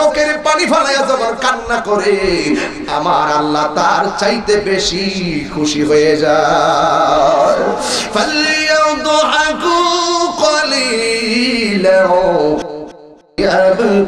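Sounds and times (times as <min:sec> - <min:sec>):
man chanting: 0:00.0 - 0:14.0.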